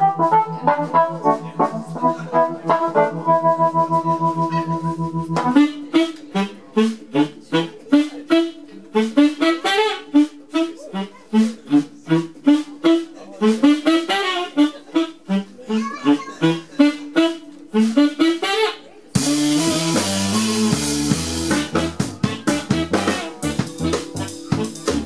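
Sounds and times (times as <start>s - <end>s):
held keyboard chord: 0.0s - 7.0s, 19.2s - 25.0s
live band music: 0.0s - 25.0s
saxophone punchy notes: 0.0s - 25.0s.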